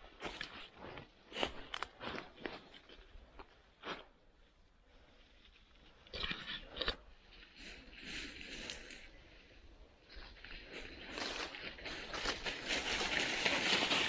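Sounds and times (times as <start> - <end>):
footsteps crunching dry leaves: 0.0 - 3.0, 10.2 - 14.0.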